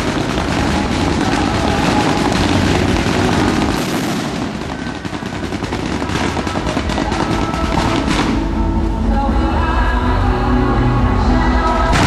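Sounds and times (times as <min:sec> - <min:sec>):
fireworks bursting: 0:00.0 - 0:09.2, 0:11.8 - 0:12.0.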